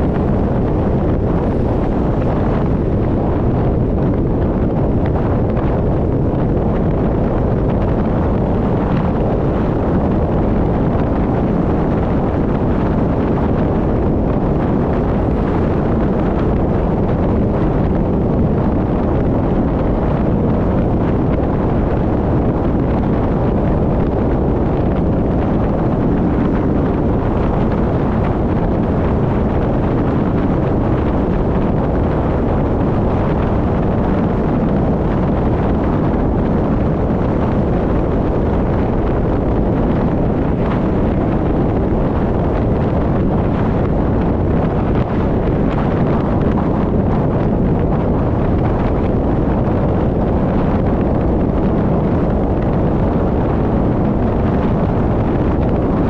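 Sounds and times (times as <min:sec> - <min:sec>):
car road noise: 0:00.0 - 0:05.2
wind buffeting microphone: 0:00.0 - 0:56.0.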